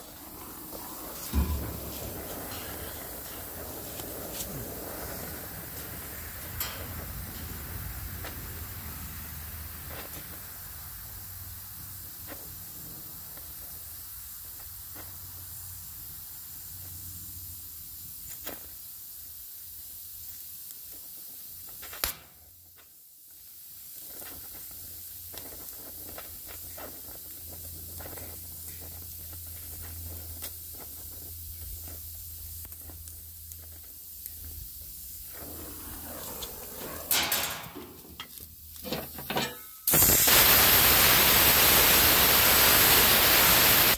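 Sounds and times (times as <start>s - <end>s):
knocks and rustles: 0.0s - 4.6s, 35.3s - 39.8s
welding torch flame hissing: 0.0s - 43.9s.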